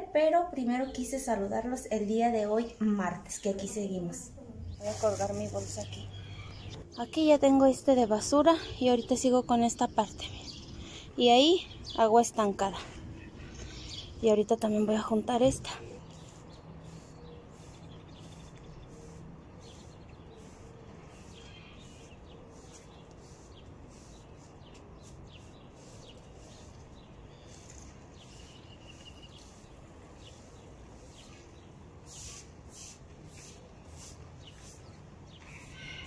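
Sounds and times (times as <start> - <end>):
outdoor background noise: 0.0 - 36.0
birds chirping: 0.5 - 36.0
broom sweeping concrete: 4.7 - 6.2, 16.0 - 36.0.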